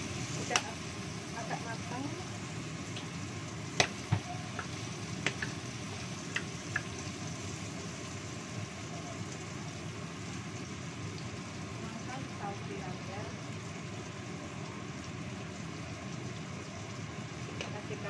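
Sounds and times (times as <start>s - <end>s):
spatula knocking and scraping wok: 3.8s - 5.6s.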